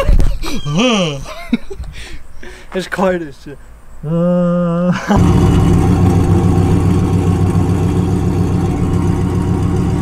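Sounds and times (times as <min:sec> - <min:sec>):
loud engine idling: 0:05.2 - 0:10.0
starter motor whirring: 0:05.2 - 0:10.0.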